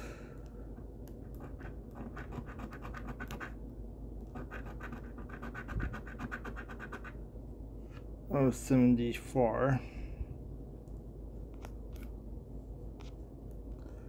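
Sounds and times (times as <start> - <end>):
scratching lottery ticket: 1.2 - 3.6, 4.3 - 7.2.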